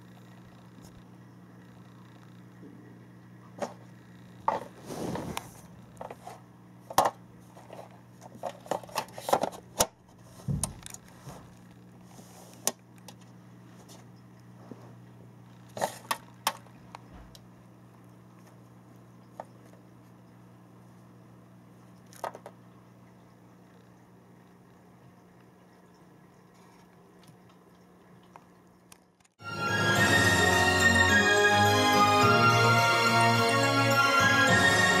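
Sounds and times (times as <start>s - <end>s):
steady low hum: 0.0s - 29.2s.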